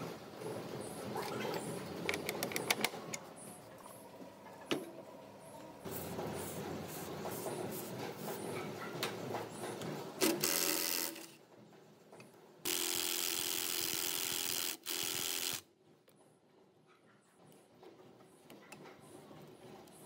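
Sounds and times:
power driver running: 12.7s - 15.6s.

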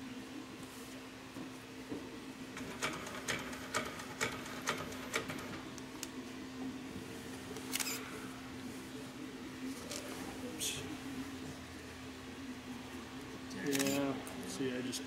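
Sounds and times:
sewing machine clatter: 2.6s - 5.6s.

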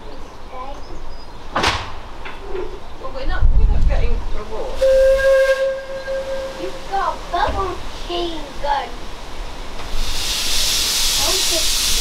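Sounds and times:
low rumble: 2.6s - 8.0s
steam locomotive whistle: 4.8s - 6.9s, 10.0s - 12.0s
hiss of steam: 4.8s - 12.0s.

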